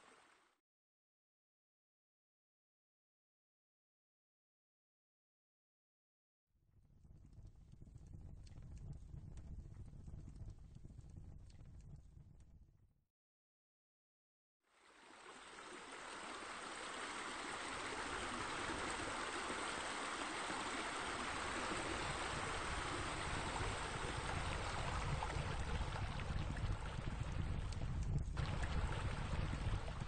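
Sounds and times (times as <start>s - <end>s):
rush of running water: 0.0s - 0.4s, 14.8s - 27.8s, 28.4s - 30.0s.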